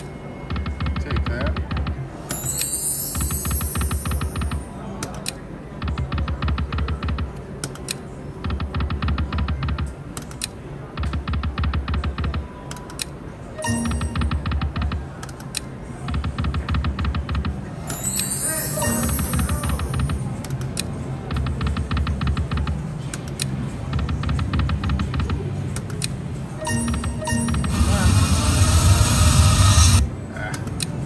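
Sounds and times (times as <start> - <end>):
slot machine reels clicking: 2.3 - 4.6, 13.6 - 14.8, 16.4 - 20.6, 25.8 - 30.0.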